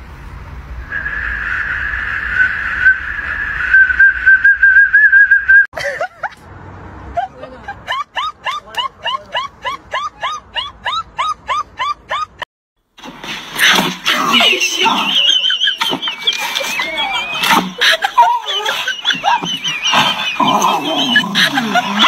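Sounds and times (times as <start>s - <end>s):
whistle long tone: 0.8s - 5.7s, 15.1s - 21.8s.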